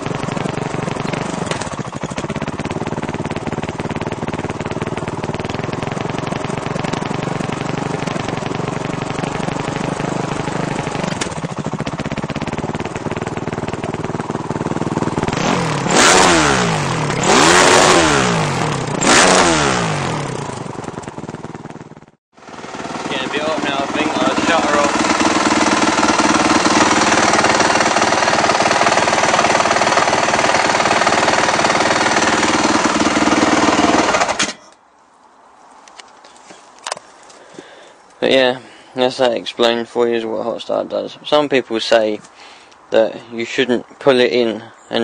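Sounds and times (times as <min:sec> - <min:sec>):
dirt bike engine idling and revving: 0:00.0 - 0:34.6.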